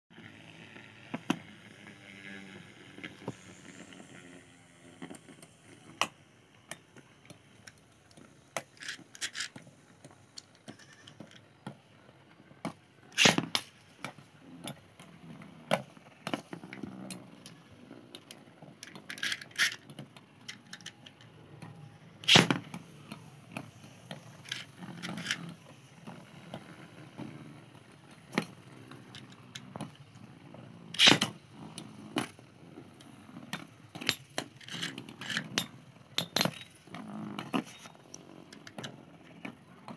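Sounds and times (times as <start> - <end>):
spinning tops whirring on a tray: 0.2 - 39.5
spinning tops clacking together: 8.6 - 9.6, 13.1 - 13.8, 18.8 - 19.8, 24.3 - 25.5, 31.0 - 31.3, 34.0 - 36.8.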